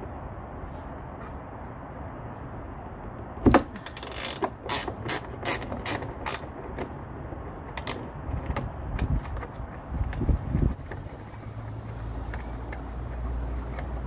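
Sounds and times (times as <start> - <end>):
ratchet wrench clicking: 3.8 - 6.5.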